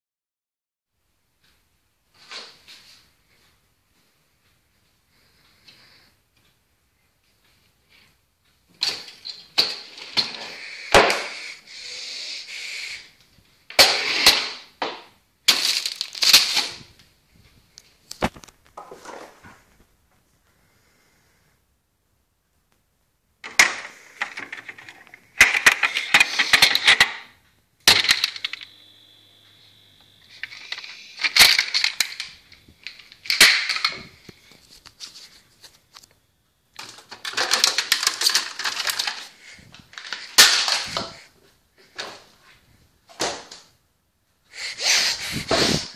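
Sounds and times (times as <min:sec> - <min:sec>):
plastic crinkling and rustling: 0:15.5 - 0:17.0, 0:30.3 - 0:36.2, 0:36.8 - 0:42.3
containers knocking and clattering: 0:36.8 - 0:39.3.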